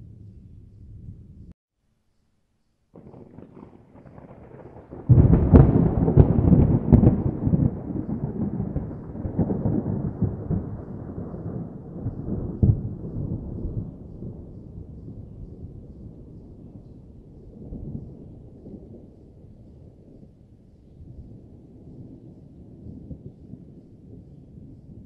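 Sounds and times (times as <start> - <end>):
thunder cracks: 3.0 - 15.4
rolling thunder rumble: 3.0 - 25.0.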